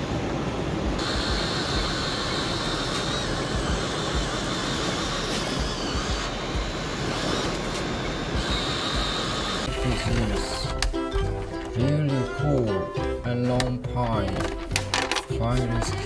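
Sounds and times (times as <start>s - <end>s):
breaking surf: 0.0s - 11.0s
electric motor whine: 0.9s - 11.0s.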